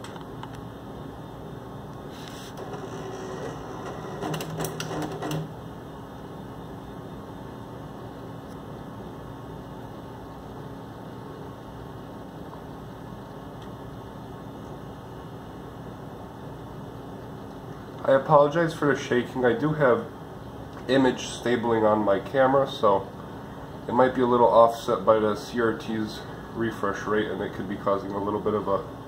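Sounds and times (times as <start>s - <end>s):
computer humming and whirring: 0.0s - 29.0s.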